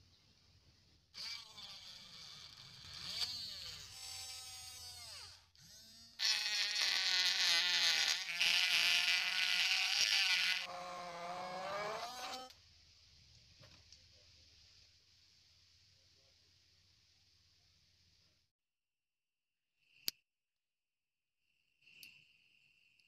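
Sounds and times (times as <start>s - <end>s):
small drill motor whining: 1.2s - 12.5s.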